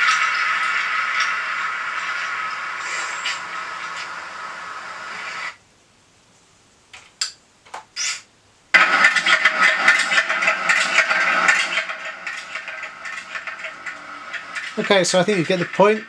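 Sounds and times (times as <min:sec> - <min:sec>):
rough engine-like machinery: 0:00.0 - 0:04.8, 0:08.8 - 0:16.0
noisy soundtrack through speakers: 0:00.0 - 0:05.6, 0:06.9 - 0:16.0.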